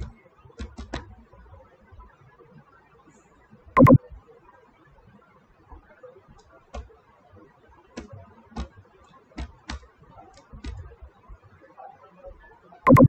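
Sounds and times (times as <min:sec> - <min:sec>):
keyboard keystrokes: 0:03.8 - 0:04.0.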